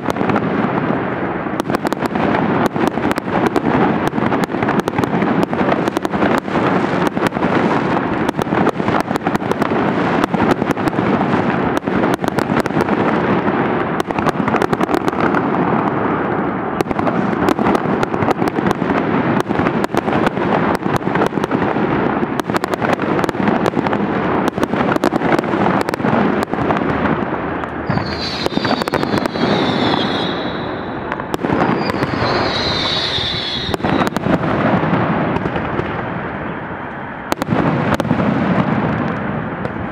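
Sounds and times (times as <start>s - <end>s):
fireworks bangs and crackling: 0.0s - 39.9s
falling firework whistles: 27.8s - 34.3s.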